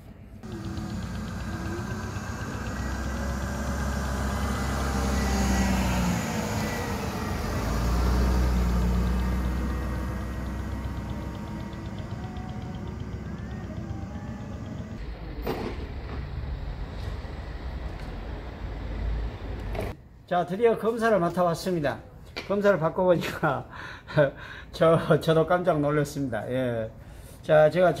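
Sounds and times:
car driving past: 0:00.4 - 0:20.0.

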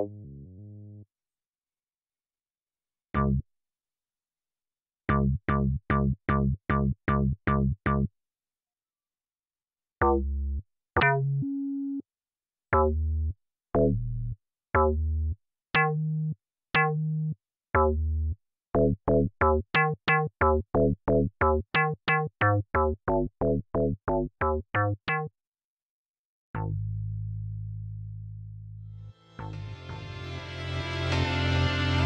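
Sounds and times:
plucky synth bass notes: 0:00.0 - 0:01.0, 0:03.2 - 0:03.4, 0:05.1 - 0:08.1, 0:10.0 - 0:12.0, 0:12.8 - 0:25.3, 0:26.6 - 0:31.3.

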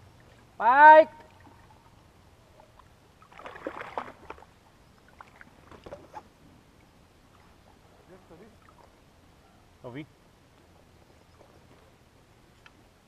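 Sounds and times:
water splashing against boat: 0:02.7 - 0:06.3.

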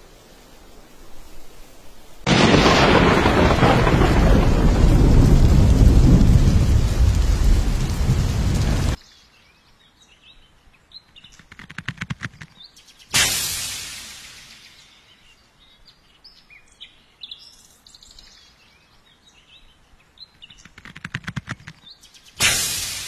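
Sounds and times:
heavy rain: 0:00.0 - 0:09.0, 0:22.4 - 0:23.0
thunder rumbling: 0:02.2 - 0:09.0
birds chirping: 0:08.8 - 0:13.2, 0:14.1 - 0:22.4.

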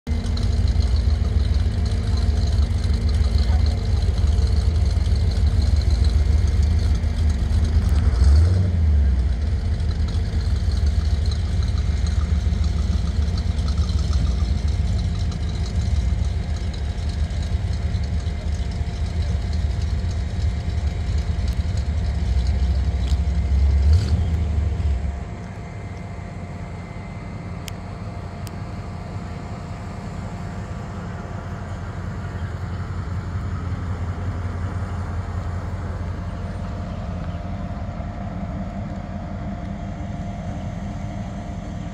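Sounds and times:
car exhaust rumbling at idle: 0:00.0 - 0:41.9.

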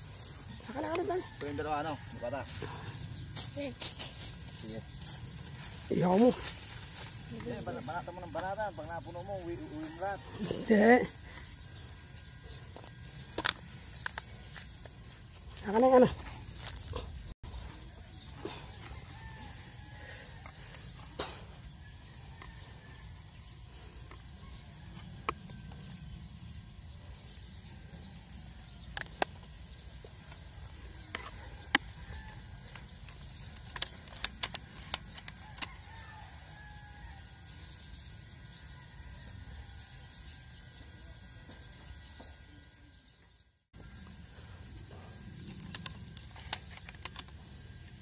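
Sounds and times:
distant rooster crowing: 0:00.3 - 0:02.9, 0:08.1 - 0:11.2, 0:18.4 - 0:26.2, 0:30.9 - 0:33.4, 0:34.4 - 0:41.2.

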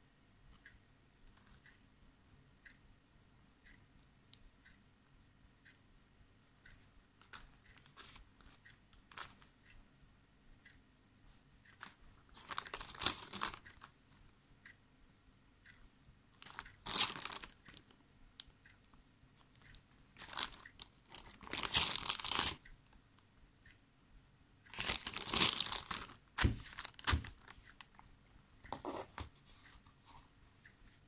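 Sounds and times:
plastic bag crinkling: 0:12.4 - 0:13.6, 0:16.4 - 0:17.6, 0:20.2 - 0:22.6, 0:24.7 - 0:27.6.

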